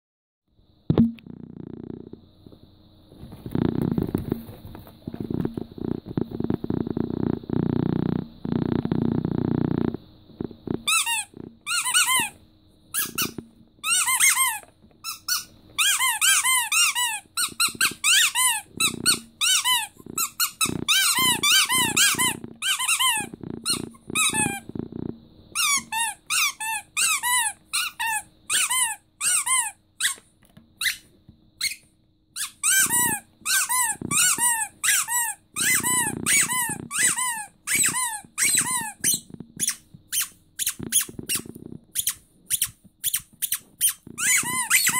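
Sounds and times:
squeaky dog toy squeaking: 0:10.8 - 0:24.6, 0:25.6 - 0:44.9.

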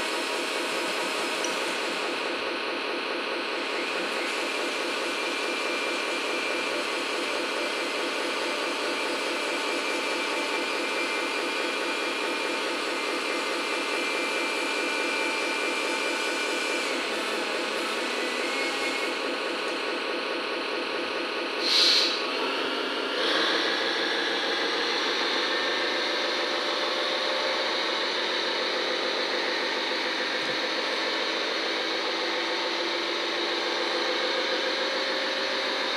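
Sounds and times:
hydraulic pump whining: 0:12.8 - 0:20.2.

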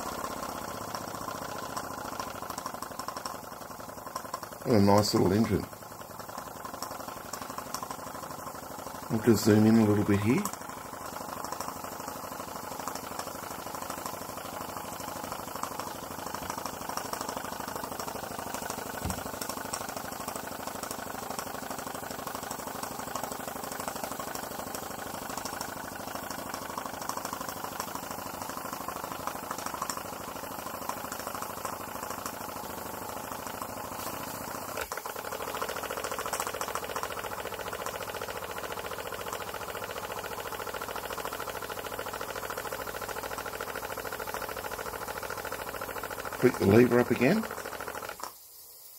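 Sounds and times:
model steam engine running: 0:00.0 - 0:48.9.

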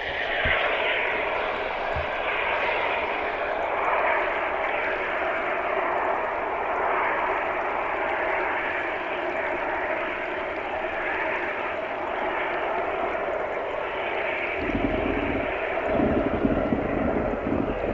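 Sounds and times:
water rushing underwater: 0:13.3 - 0:17.9.

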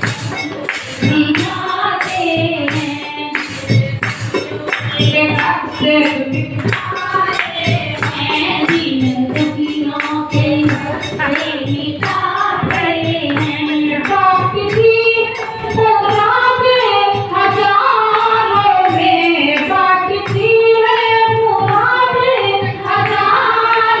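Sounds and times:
hand claps: 0:00.0 - 0:16.2, 0:21.4 - 0:23.8
jingling percussion: 0:00.0 - 0:24.0
women singing devotional song: 0:00.0 - 0:24.0.

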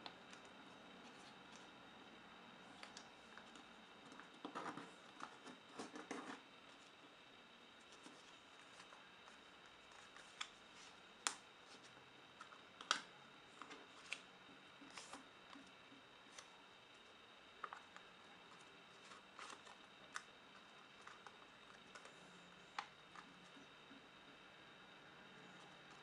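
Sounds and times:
paper rustling and crinkling: 0:18.9 - 0:20.2.

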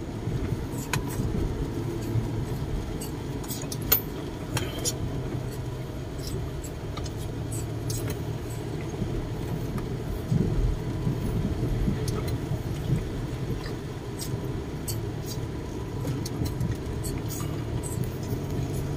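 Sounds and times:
road and engine rumble in van: 0:00.0 - 0:18.9.

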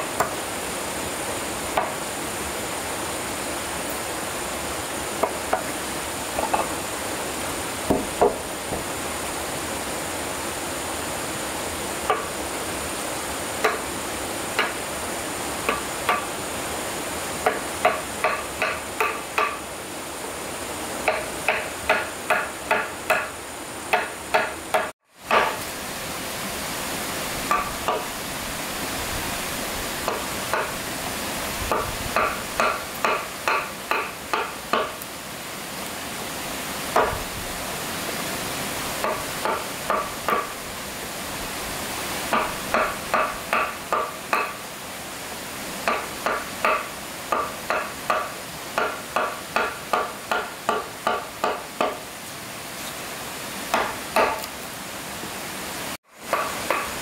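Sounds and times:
steady background hiss: 0:00.0 - 0:57.0.

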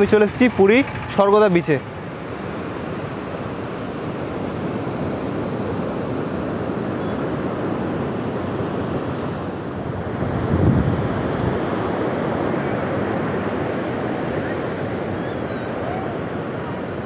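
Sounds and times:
sea surf washing onto beach: 0:00.0 - 0:17.0
wind on microphone: 0:00.0 - 0:17.0.

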